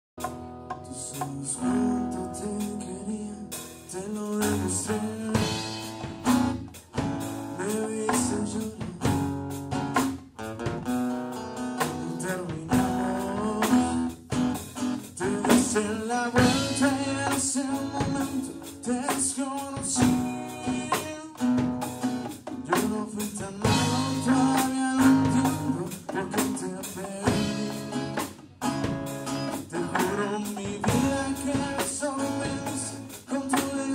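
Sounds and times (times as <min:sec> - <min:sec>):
bongos: 0:00.2 - 0:02.8, 0:03.5 - 0:33.9
acoustic guitar: 0:00.2 - 0:33.9
drum kit: 0:00.2 - 0:33.9
man singing: 0:00.8 - 0:06.3, 0:07.5 - 0:09.5, 0:11.8 - 0:14.3, 0:15.0 - 0:21.7, 0:22.6 - 0:28.2, 0:29.4 - 0:33.9.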